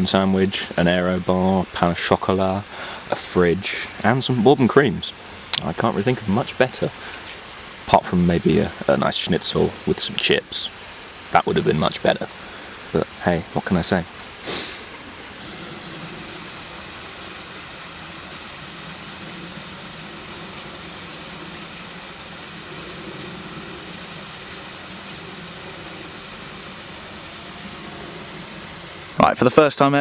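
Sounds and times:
background hiss: 0.0 - 30.0
low hum: 9.7 - 29.3.

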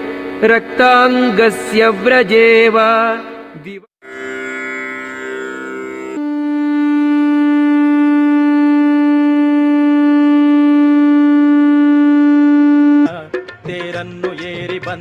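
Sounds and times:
conch shell blown: 4.0 - 13.2
held chord of steady tones: 4.4 - 13.1.

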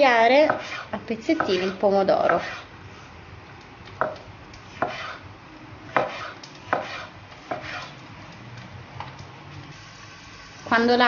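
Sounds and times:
knife chopping on wooden board: 0.4 - 2.6, 4.0 - 5.2, 5.9 - 7.9.

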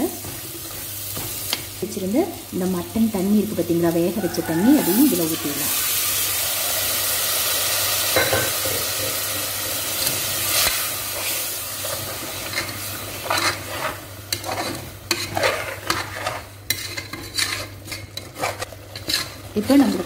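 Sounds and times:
food sizzling in pot: 0.0 - 20.0
steel ladle scraping and knocking pot: 12.5 - 19.7.

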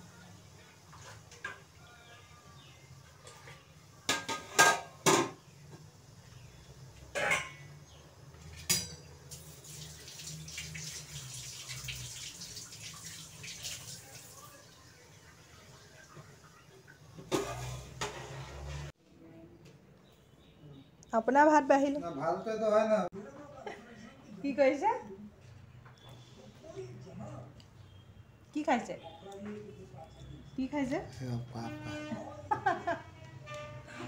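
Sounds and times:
metal cookware clattering: 3.2 - 5.4, 7.1 - 7.8, 8.5 - 9.6, 17.2 - 18.9
kitchen tap running: 9.3 - 17.3.

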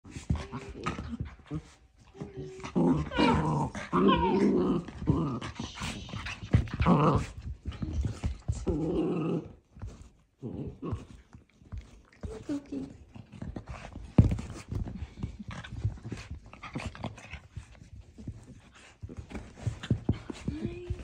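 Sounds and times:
dogs growling in play: 0.1 - 21.0.

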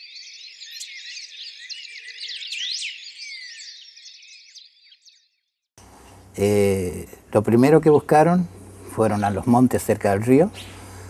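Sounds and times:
small birds chirping and singing: 0.0 - 5.7.

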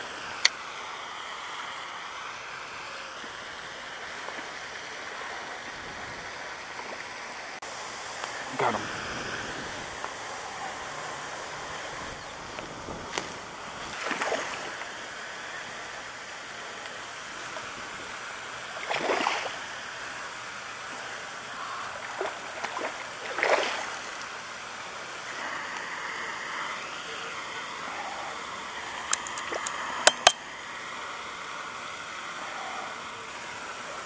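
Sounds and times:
steady background hiss: 0.0 - 34.0
fish splashing at water surface: 13.1 - 15.5, 17.1 - 24.9.

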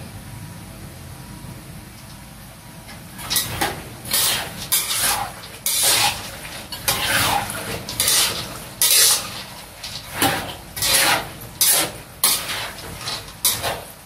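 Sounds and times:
metal ladle scraping a wok: 3.2 - 14.0
peanuts rattling in a pan: 3.2 - 14.0.

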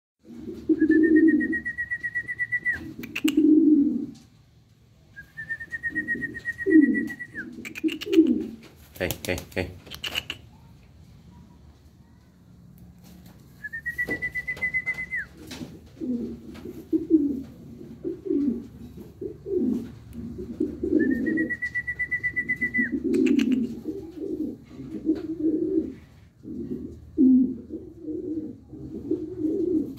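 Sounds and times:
pigeons cooing: 0.2 - 4.2, 5.9 - 8.7, 14.1 - 29.9.

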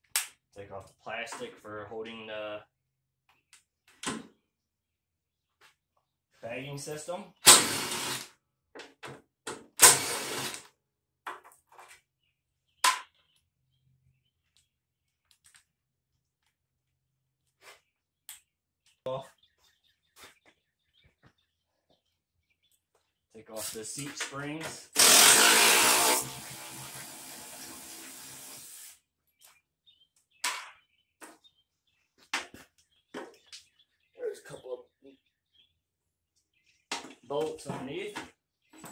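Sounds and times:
cordless drill whirring: 7.5 - 8.3, 9.8 - 10.7, 25.0 - 27.5.

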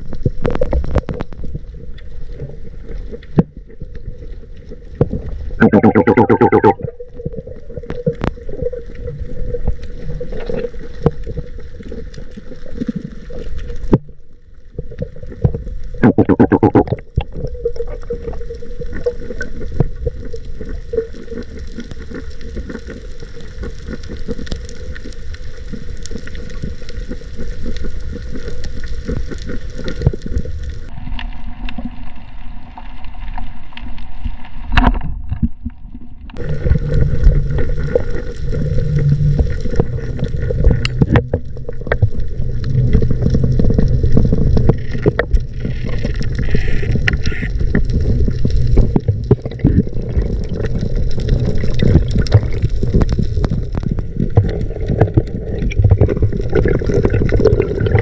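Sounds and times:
dense crackling clicks: 0.0 - 58.0
underwater water noise: 0.0 - 58.0
steady hum: 16.0 - 17.0.

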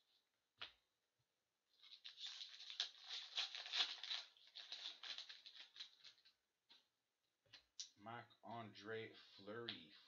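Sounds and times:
foil wrapper crinkling: 1.8 - 6.3.

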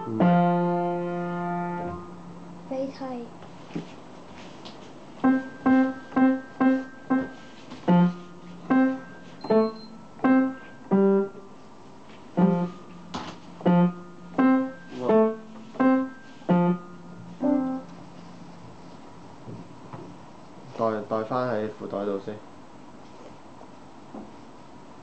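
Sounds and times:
piano melody: 0.0 - 2.7, 5.2 - 11.7, 12.3 - 18.9.

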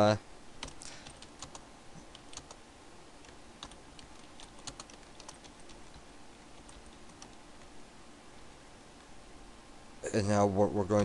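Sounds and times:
keyboard keystroke clicks: 3.2 - 6.0.

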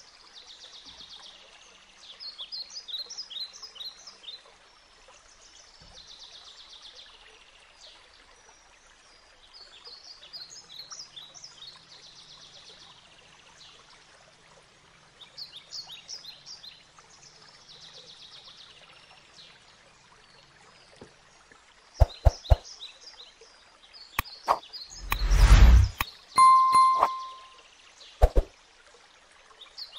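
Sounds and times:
loud brief whoosh: 24.5 - 26.0
ding: 26.4 - 27.6.

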